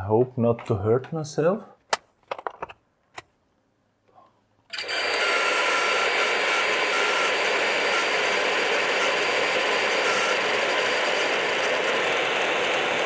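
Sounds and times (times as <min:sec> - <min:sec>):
fan whirring: 0:04.7 - 0:13.0.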